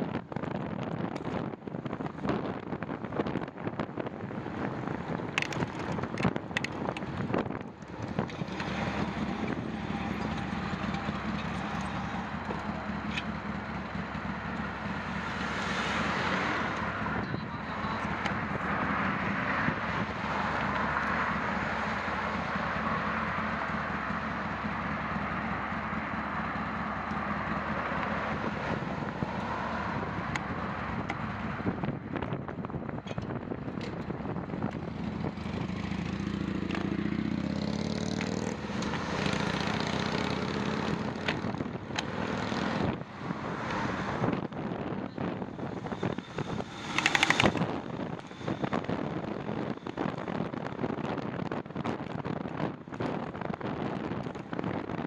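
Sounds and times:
wind buffeting microphone: 0:00.0 - 0:15.4, 0:26.6 - 0:55.0
city traffic passing: 0:00.0 - 0:55.0
sharp knocks and crackles: 0:46.4 - 0:47.7.

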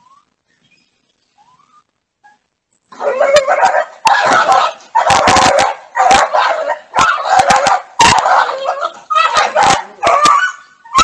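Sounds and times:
dog barking and yelping: 0:02.2 - 0:11.0.

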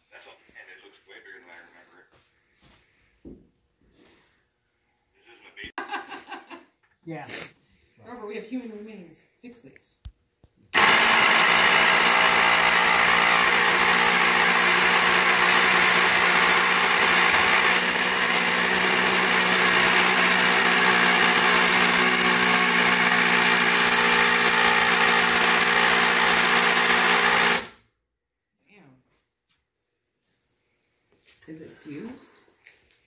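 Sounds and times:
power drill running: 0:10.8 - 0:27.8.

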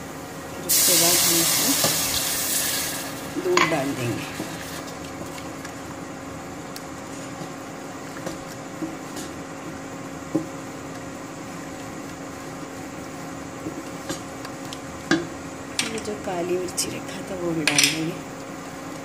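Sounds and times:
steady motor hum: 0:00.0 - 0:19.0.

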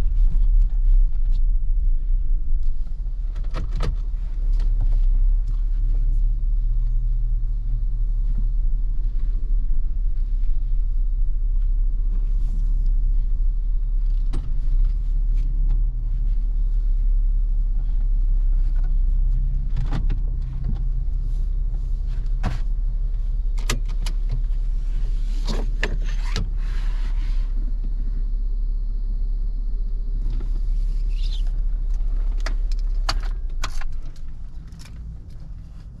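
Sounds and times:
car engine idling: 0:00.0 - 0:36.0
clicks and knocks from controls: 0:02.6 - 0:06.0, 0:14.0 - 0:16.0, 0:18.6 - 0:24.8, 0:25.4 - 0:26.6, 0:30.2 - 0:36.0.

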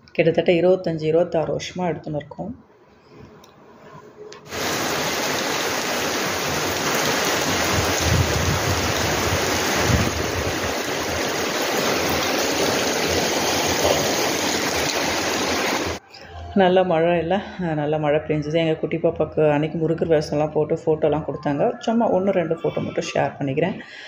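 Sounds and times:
heavy rain on pavement: 0:04.5 - 0:16.0.

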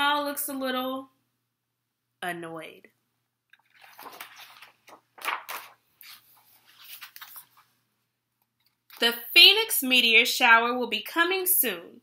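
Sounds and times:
book pages turning: 0:03.5 - 0:07.8.

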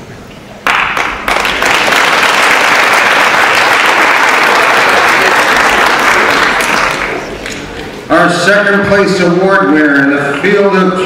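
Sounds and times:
audience applauding: 0:00.6 - 0:07.8.

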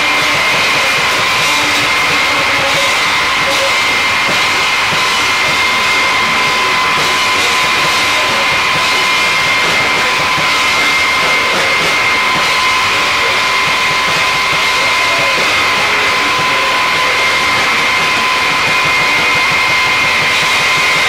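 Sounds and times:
high whining tones: 0:00.0 - 0:21.0
wall of distorted noise: 0:00.0 - 0:21.0.

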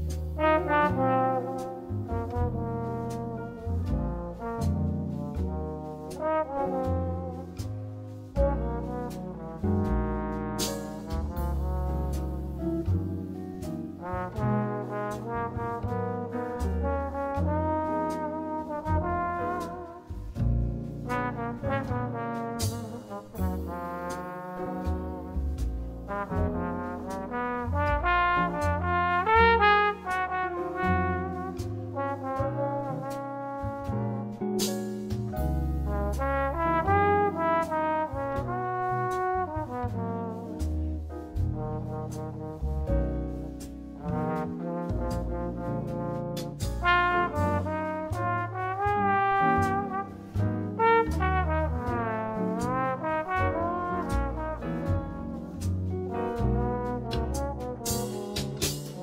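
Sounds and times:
bass line: 0:00.0 - 0:59.0
trombone melody: 0:00.0 - 0:59.0.

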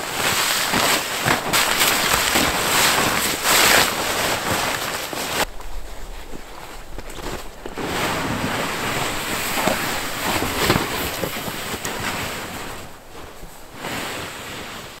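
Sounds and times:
footsteps crunching in snow: 0:00.0 - 0:15.0
sled scraping over snow: 0:00.0 - 0:15.0.

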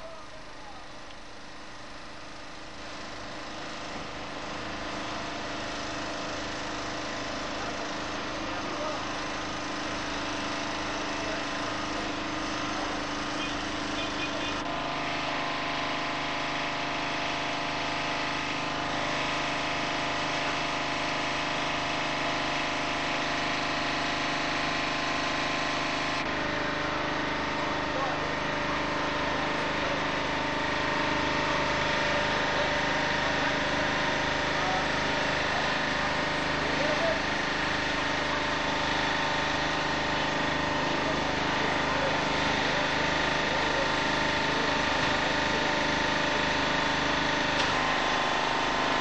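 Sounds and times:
street noise: 0:00.0 - 0:49.0.

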